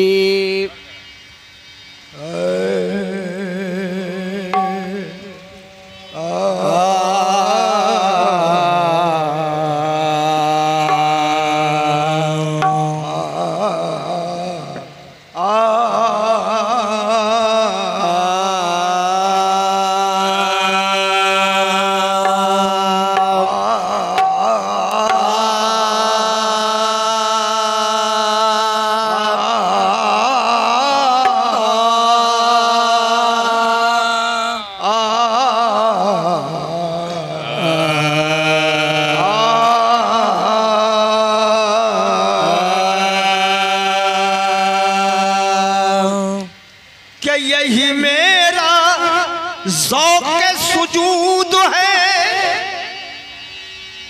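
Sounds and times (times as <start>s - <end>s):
man singing long wavering notes: 0.0s - 0.9s, 2.1s - 54.0s
harmonium accompaniment: 52.1s - 54.0s.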